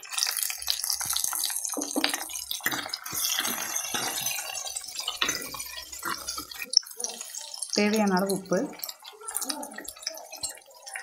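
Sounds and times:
onions sizzling in oil: 0.0 - 11.0
steel ladle stirring in pot: 0.8 - 9.2.

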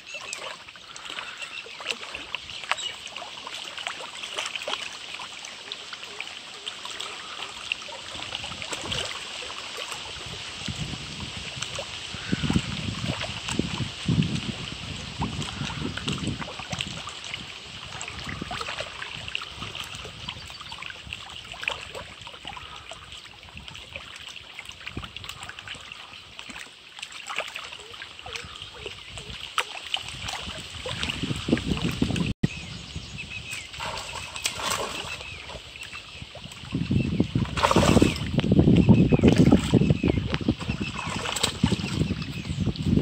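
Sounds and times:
fish splashing: 0.0 - 32.4, 33.3 - 42.4
light water sounds: 0.0 - 43.0
wind on microphone: 8.1 - 9.2, 10.0 - 22.8, 28.2 - 43.0.

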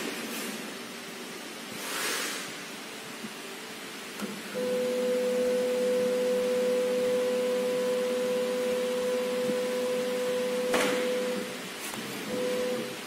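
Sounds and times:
spindle motor high whine: 4.2 - 13.0.

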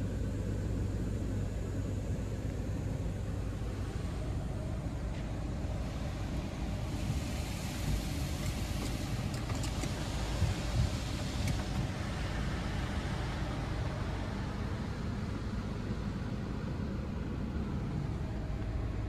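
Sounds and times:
car wash spray rumble: 0.0 - 19.0
water hissing on windows: 5.7 - 14.8.

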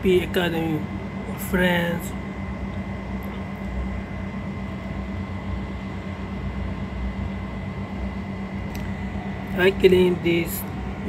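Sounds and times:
background hum and rumble: 0.0 - 11.0
faint high whine: 0.0 - 11.0.

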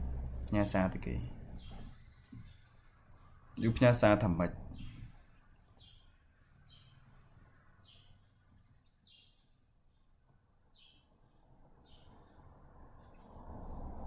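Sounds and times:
bird chirping: 0.6 - 4.1, 4.7 - 13.4.

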